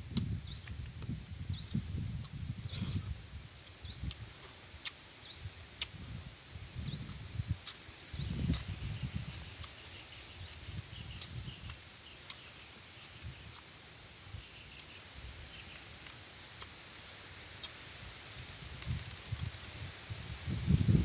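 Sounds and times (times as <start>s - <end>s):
bird chirps: 0.4s - 0.8s, 2.7s - 3.1s, 6.8s - 7.2s.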